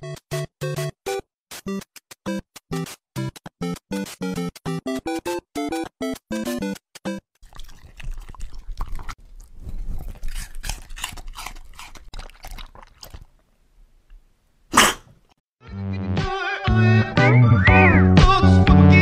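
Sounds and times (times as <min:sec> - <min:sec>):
dog licking and smacking: 0:07.4 - 0:13.4.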